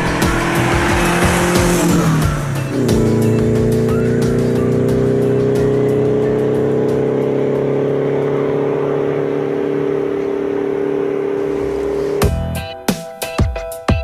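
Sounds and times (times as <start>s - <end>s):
droning held chord: 0.0s - 12.2s.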